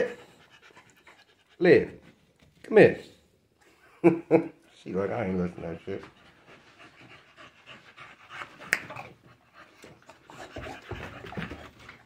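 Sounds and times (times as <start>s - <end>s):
dog panting: 0.0s - 2.4s, 4.9s - 12.0s
finger snap: 8.7s - 8.9s.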